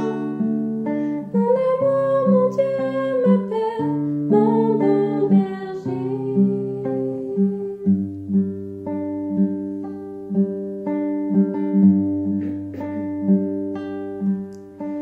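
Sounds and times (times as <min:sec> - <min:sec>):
acoustic guitar picking: 0:00.0 - 0:15.0
person singing: 0:01.2 - 0:08.0.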